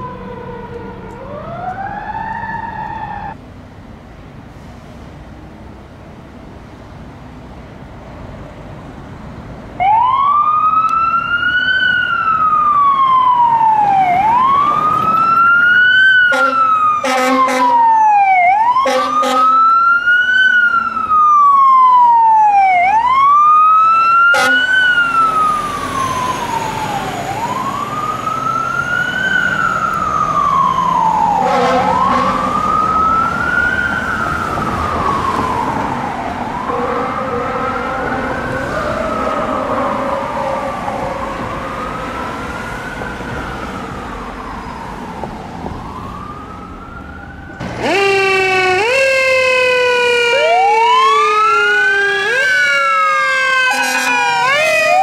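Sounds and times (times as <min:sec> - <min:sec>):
fire truck siren wailing: 0:00.0 - 0:03.4, 0:09.8 - 0:55.0
fire truck driving off: 0:00.0 - 0:55.0
air horn blasts: 0:16.3 - 0:17.8, 0:18.8 - 0:19.7, 0:24.3 - 0:24.8, 0:31.4 - 0:32.5, 0:53.6 - 0:55.0.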